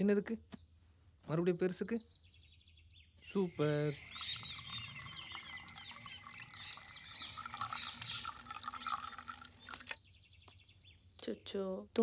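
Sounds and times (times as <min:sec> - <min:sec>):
birds chirping: 0:00.0 - 0:12.0
milk trickling into bottle: 0:03.9 - 0:10.0.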